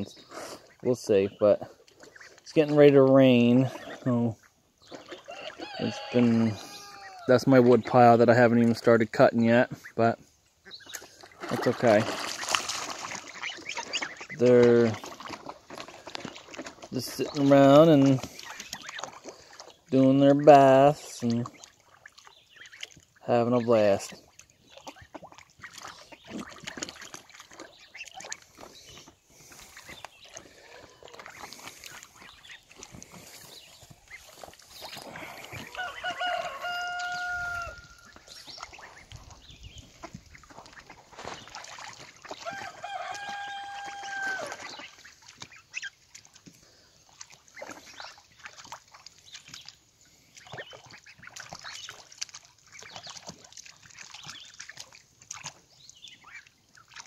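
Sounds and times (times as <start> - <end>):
ducks splashing in water: 0.0 - 57.0
fowl long steady call: 35.7 - 38.1, 42.6 - 44.6.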